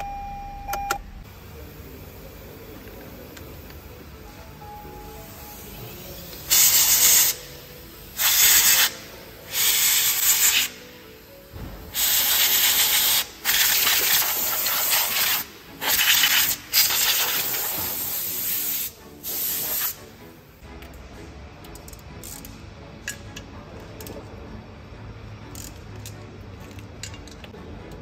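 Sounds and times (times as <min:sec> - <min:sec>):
air blow gun hissing: 0:05.2 - 0:20.2.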